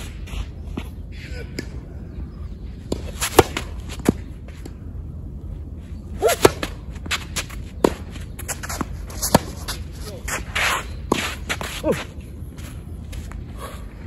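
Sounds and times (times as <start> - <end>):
racket hitting tennis ball: 2.9 - 4.7, 6.2 - 11.9.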